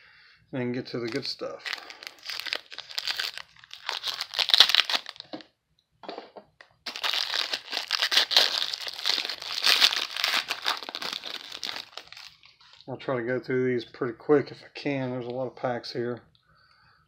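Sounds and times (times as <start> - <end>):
foil wrapper crinkling: 1.1 - 5.4, 6.8 - 12.9.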